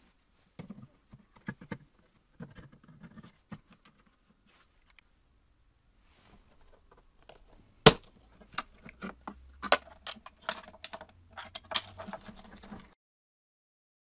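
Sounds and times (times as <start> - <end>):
small parts clicking and rattling: 8.4 - 13.0.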